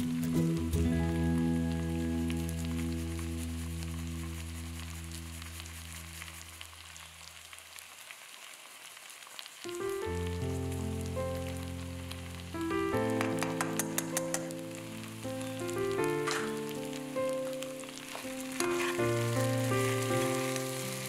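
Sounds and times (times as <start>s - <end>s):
soft background music chords: 0.0s - 5.4s, 9.8s - 21.0s
potatoes sizzling in hot oil: 0.0s - 21.0s.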